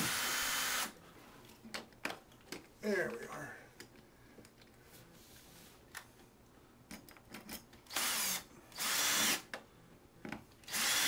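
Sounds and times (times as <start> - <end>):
power drill running: 0.0 - 0.9, 7.9 - 9.4, 10.7 - 11.0.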